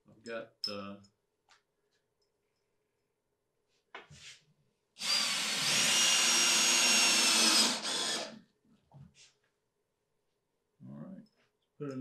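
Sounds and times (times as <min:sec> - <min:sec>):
cordless drill driving a screw: 0:05.0 - 0:08.4.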